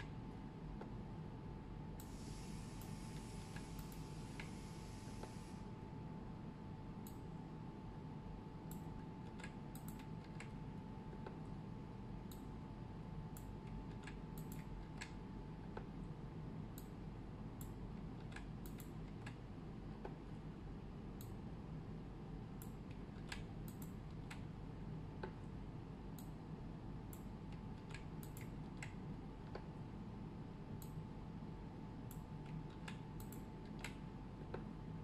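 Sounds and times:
faint steady hum: 0:00.0 - 0:35.0
computer mouse clicks: 0:02.8 - 0:04.6, 0:07.0 - 0:07.3, 0:08.7 - 0:10.6, 0:12.2 - 0:12.5, 0:13.3 - 0:15.9, 0:16.7 - 0:17.0, 0:17.6 - 0:20.2, 0:21.2 - 0:21.4, 0:22.6 - 0:24.5, 0:26.1 - 0:26.4, 0:27.1 - 0:29.7, 0:30.8 - 0:31.0, 0:32.0 - 0:34.7.

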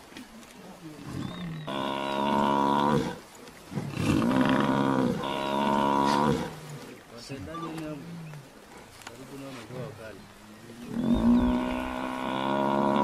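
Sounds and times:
buffalo bellowing: 0:03.9 - 0:06.8, 0:10.9 - 0:13.0.

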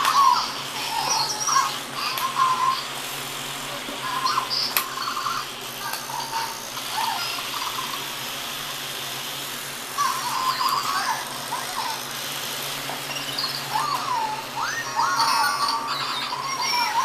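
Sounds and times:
toy motors whirring: 0:00.0 - 0:17.0
electronic squeaks and chirps: 0:13.0 - 0:16.9.

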